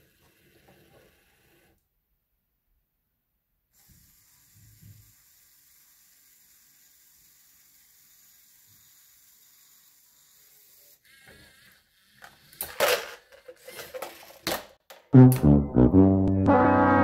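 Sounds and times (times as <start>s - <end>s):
plastic parts clicking and clattering: 12.2s - 15.1s.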